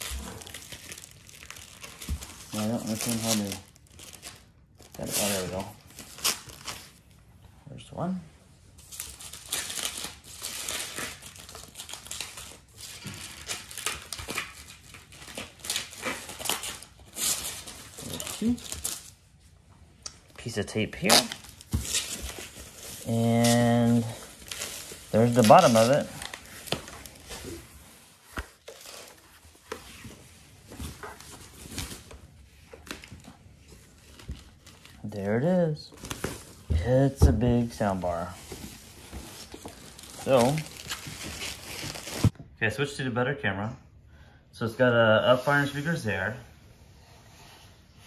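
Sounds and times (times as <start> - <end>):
plastic packaging crinkling: 0.0 - 7.0, 8.8 - 19.2, 21.0 - 35.1, 38.0 - 42.3.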